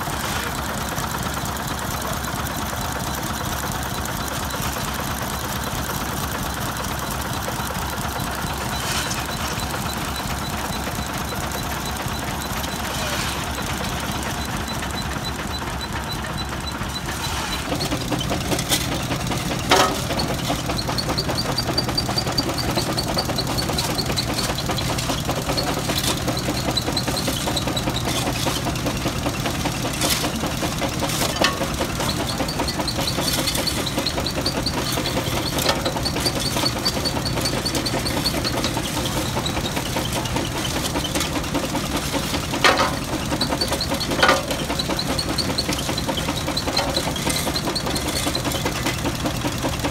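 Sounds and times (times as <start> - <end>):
engine running: 0.0 - 49.9
stone cracking in crusher: 17.6 - 49.2.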